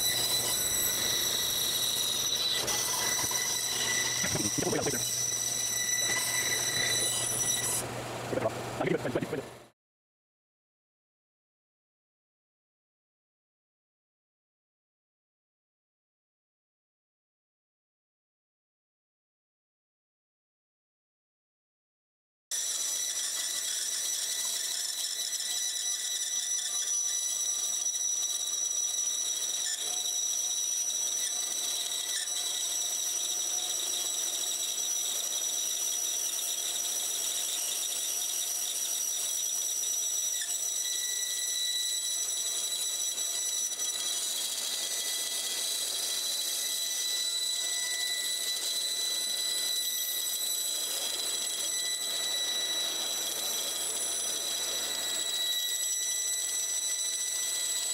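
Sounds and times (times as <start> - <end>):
bandsaw cutting wood: 0.0 - 9.3, 22.5 - 57.9.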